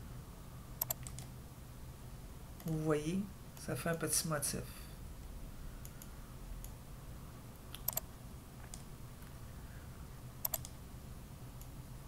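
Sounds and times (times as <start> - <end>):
low steady hum: 0.0 - 12.0
computer mouse clicks: 0.8 - 1.3, 5.8 - 6.8, 7.6 - 8.9, 10.4 - 10.8, 11.6 - 11.8.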